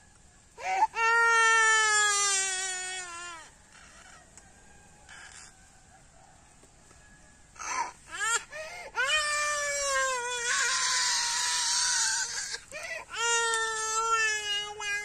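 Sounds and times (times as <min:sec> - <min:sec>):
toddler crying: 0:00.6 - 0:03.9, 0:07.6 - 0:15.0.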